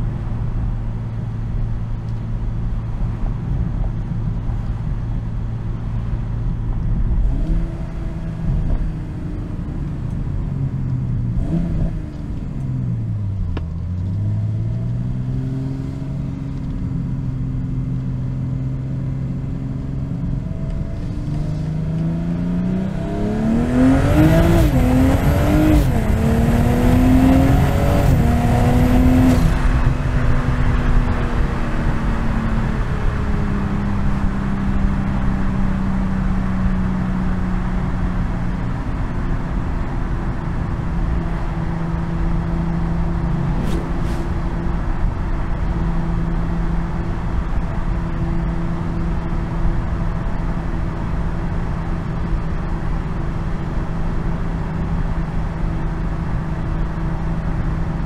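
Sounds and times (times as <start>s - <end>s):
car engine and exhaust: 0.0s - 58.0s
gear upshifts: 42.0s - 45.8s.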